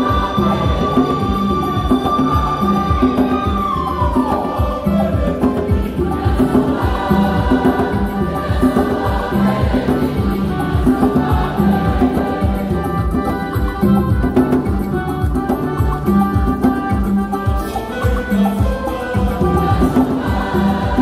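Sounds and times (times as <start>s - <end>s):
congregation singing: 0.0s - 21.0s
electronic keyboard playing hymn: 0.0s - 21.0s.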